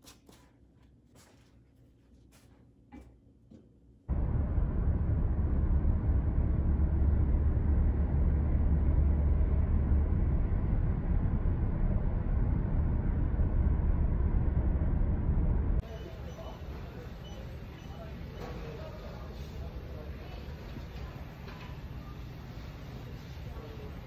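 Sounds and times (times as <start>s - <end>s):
road and engine rumble inside car: 4.1s - 15.9s.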